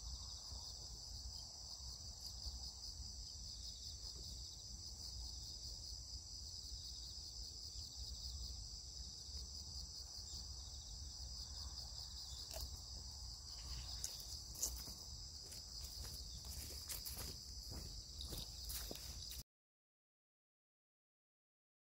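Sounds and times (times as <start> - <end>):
insect chorus trilling: 0.0 - 19.4
footsteps through grass: 13.5 - 19.4.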